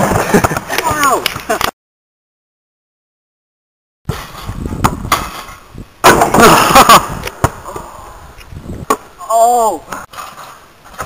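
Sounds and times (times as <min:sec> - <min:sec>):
trampoline thumps: 0:04.1 - 0:07.7.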